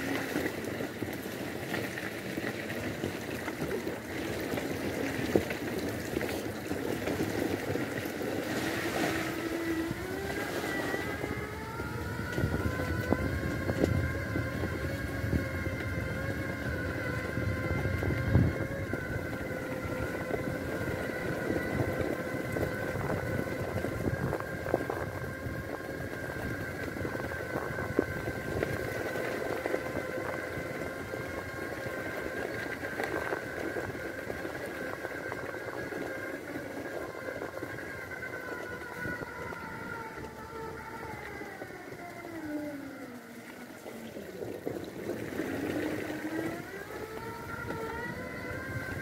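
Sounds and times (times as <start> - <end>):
electric motors whining: 0.0 - 49.0.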